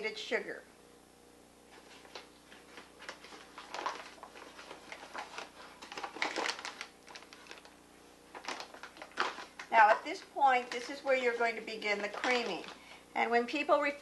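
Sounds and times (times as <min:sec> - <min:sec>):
paper bag rustling: 0:01.7 - 0:12.9.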